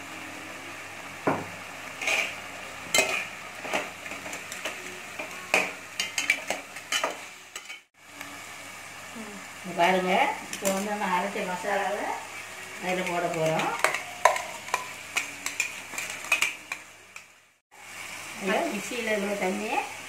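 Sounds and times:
pot cooking hiss: 0.0 - 20.0
metal ladle scraping a pot: 2.0 - 7.9.

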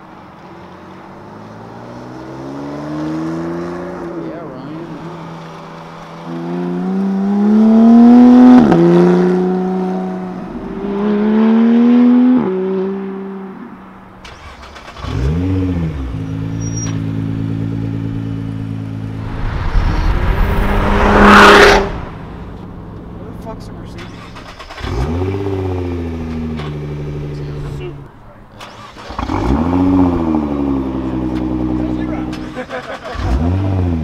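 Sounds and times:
sports car accelerating through gears: 1.4 - 13.7, 14.9 - 23.1, 29.0 - 32.4
car accelerating hard: 6.2 - 13.6, 19.0 - 23.0, 28.7 - 34.0.

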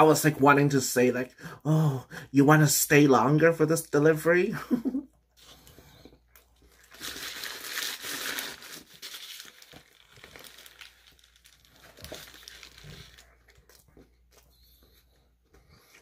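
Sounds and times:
biting and chewing: 5.4 - 16.0
paper wrapper crinkling: 6.7 - 14.3.

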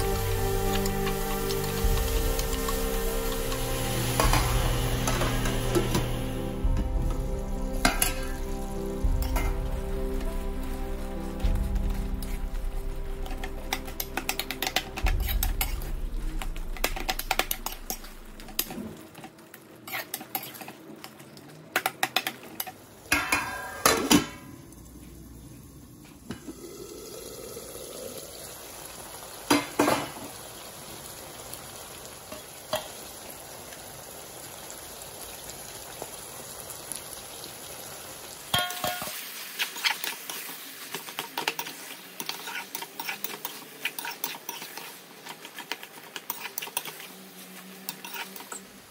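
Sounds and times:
vegetables sizzling: 0.0 - 48.9
metal spatula scraping a pan: 13.2 - 19.0, 19.9 - 20.8, 38.6 - 48.8.

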